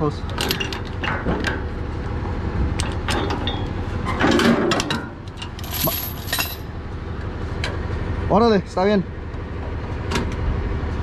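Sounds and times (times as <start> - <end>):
low steady rumble: 0.0 - 11.0
metal chain clanking: 4.2 - 6.7.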